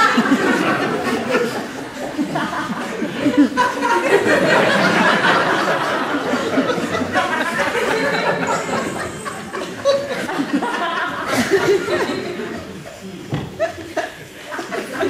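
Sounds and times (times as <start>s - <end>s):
audience laughing: 0.0s - 15.0s.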